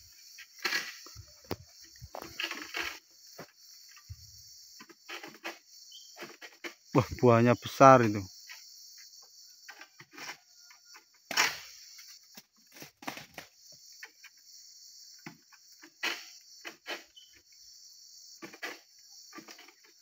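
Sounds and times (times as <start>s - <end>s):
high-pitched insect chorus: 0.0s - 20.0s
sickle knocking and scraping fronds: 0.5s - 8.2s, 18.4s - 20.0s.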